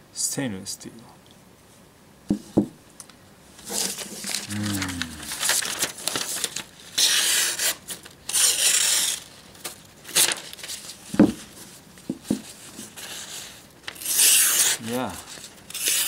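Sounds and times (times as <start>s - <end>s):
paper rustling: 3.6s - 16.0s
knife slicing paper: 5.4s - 10.8s, 12.9s - 16.0s.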